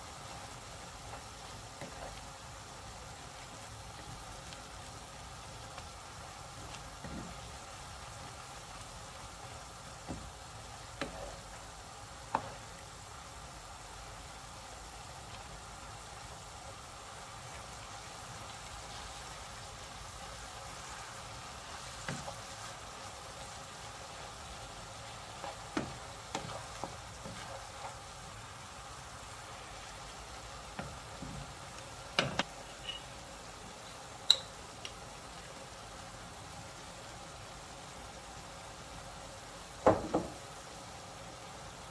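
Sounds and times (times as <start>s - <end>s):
food sizzling in a pan: 0.0s - 41.9s
wooden spatula knocking a pan: 10.0s - 10.4s, 25.4s - 27.9s, 39.8s - 40.4s.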